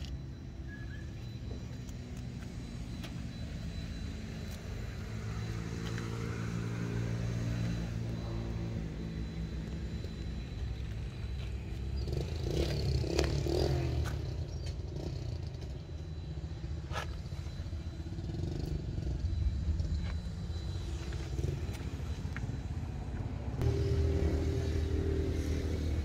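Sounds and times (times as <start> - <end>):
engine low rumble: 0.0 - 26.0
higher engine note: 16.6 - 26.0.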